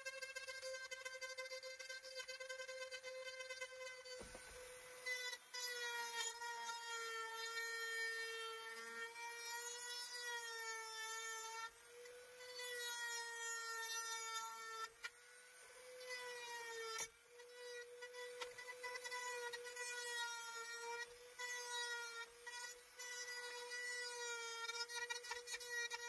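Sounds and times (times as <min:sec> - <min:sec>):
rotary tool grinding: 0:00.0 - 0:26.0.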